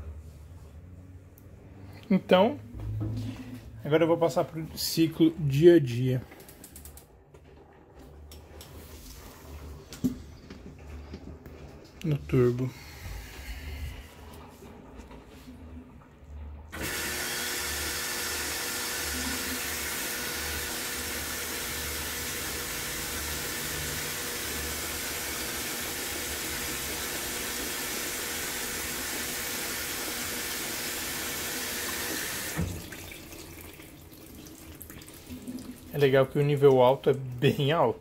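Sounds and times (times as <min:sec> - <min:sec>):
water pouring into washing machine: 0:12.7 - 0:37.7.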